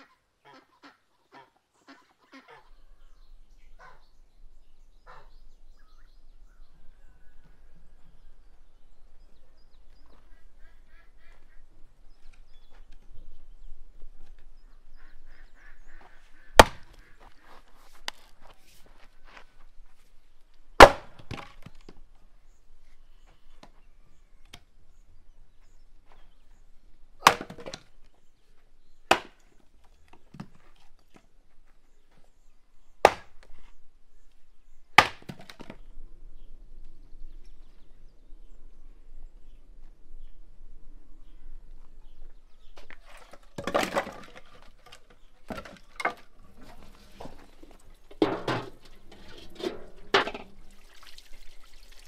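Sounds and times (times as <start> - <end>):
axe splitting firewood: 16.6 - 17.0, 20.8 - 21.8, 27.2 - 27.9, 29.1 - 30.6, 33.0 - 33.5, 35.0 - 35.8, 43.0 - 50.6
wood knocking: 43.6 - 50.6.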